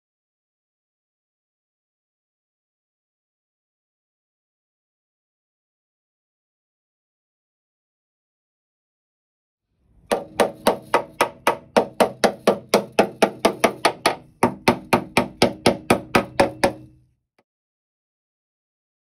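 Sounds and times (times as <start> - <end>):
hammer tapping on metal panel: 10.1 - 17.0.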